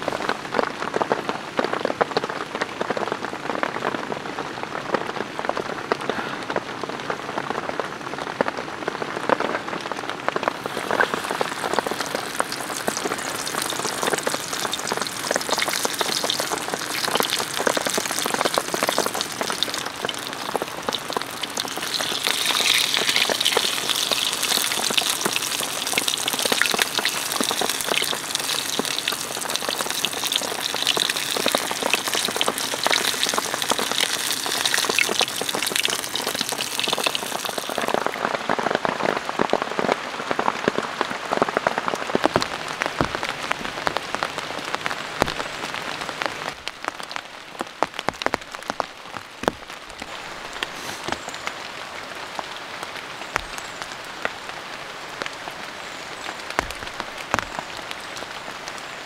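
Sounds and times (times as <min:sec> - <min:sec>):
rain pattering: 0:00.0 - 0:59.0
fritters deep-frying in hot oil: 0:10.5 - 0:38.3.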